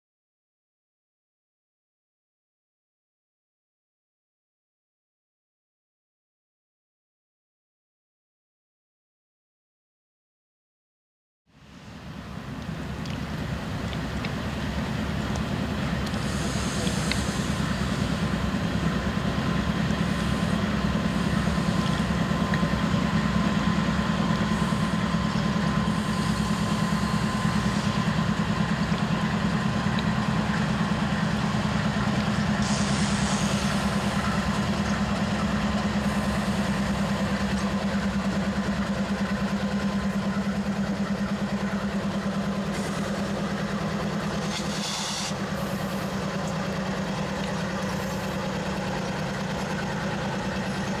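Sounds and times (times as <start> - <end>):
diesel locomotives passing: 11.5 - 51.0
low engine drone: 11.5 - 51.0.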